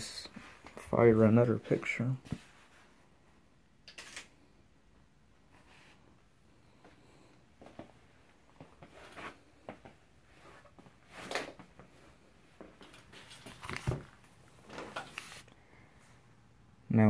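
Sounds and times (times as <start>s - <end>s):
tablet handling clicks and rustles: 12.8s - 15.6s.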